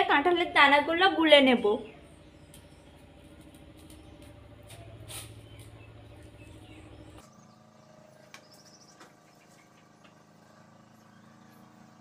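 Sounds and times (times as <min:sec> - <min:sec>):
bird chirps: 0:03.8 - 0:09.9.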